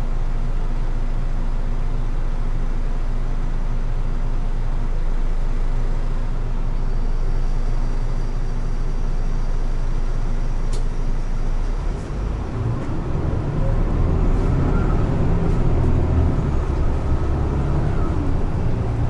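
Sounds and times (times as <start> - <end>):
bus engine idling: 0.0 - 19.0
faint high whine: 5.3 - 12.3.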